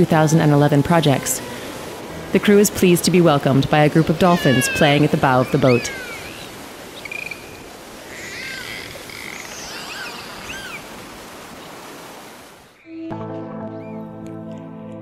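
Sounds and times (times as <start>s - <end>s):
water rushing: 0.0s - 12.8s
dolphins whistling: 4.0s - 10.9s.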